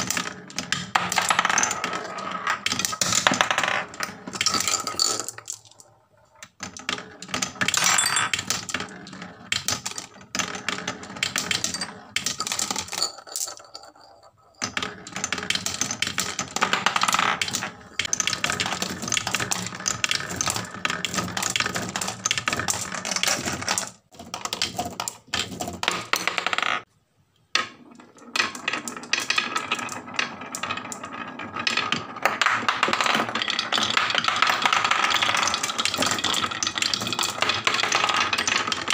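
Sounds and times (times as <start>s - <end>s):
marbles rattling down wooden run: 0.0s - 26.9s, 27.6s - 38.9s.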